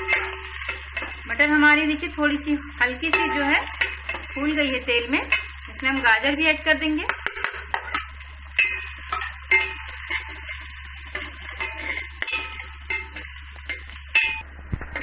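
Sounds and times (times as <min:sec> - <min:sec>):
metal spatula scraping pot: 0:00.0 - 0:01.4, 0:03.0 - 0:05.8, 0:07.3 - 0:14.4
vegetables sizzling in oil: 0:00.0 - 0:15.0.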